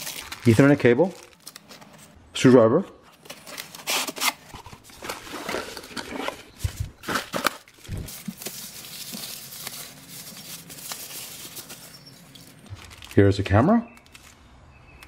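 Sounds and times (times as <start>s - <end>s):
plastic bags crinkling: 0.0s - 2.1s, 3.2s - 14.4s.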